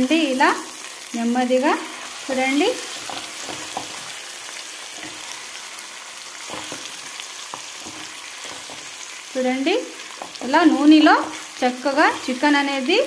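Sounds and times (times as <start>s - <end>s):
chicken sizzling in hot oil: 0.0s - 13.0s
spatula scraping and knocking pan: 2.3s - 4.3s, 4.9s - 9.2s, 10.0s - 12.9s.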